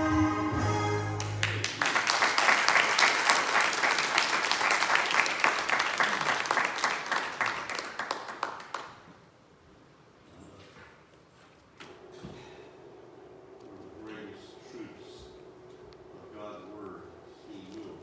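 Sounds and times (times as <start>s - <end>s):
congregation applauding: 1.2s - 9.2s.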